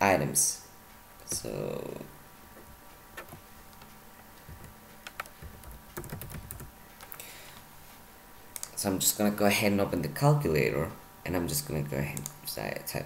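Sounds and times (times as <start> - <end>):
keyboard keystrokes: 4.5 - 7.2.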